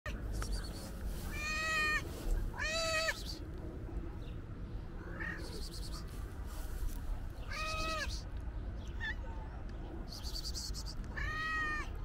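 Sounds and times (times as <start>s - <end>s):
cat meowing: 1.3s - 2.0s, 2.6s - 3.2s, 7.5s - 8.1s, 11.1s - 11.9s.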